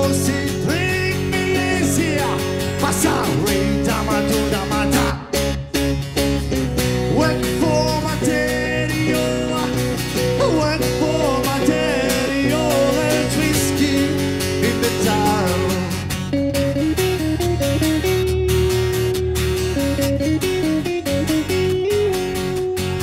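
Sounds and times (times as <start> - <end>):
bass line: 0.0 - 23.0
strummed guitars: 0.0 - 23.0
wavering lead melody: 5.3 - 23.0.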